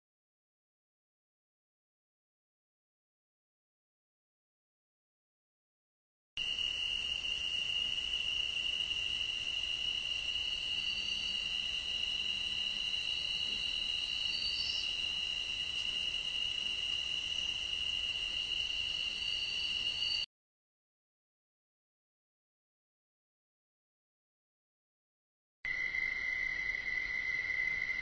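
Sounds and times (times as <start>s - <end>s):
crickets trilling: 6.4s - 20.3s, 25.7s - 28.0s.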